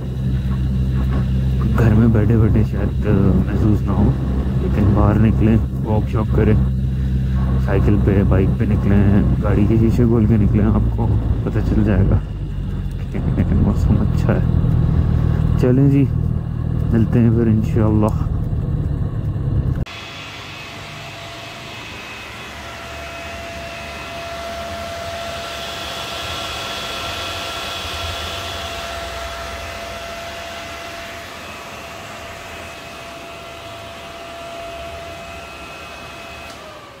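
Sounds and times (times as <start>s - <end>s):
constant whine: 0.0s - 37.0s
whooshing fan-like drone: 0.0s - 37.0s.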